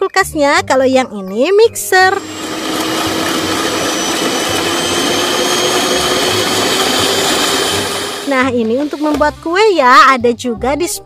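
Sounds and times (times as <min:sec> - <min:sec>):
electric hand mixer whipping batter: 0:02.0 - 0:09.6.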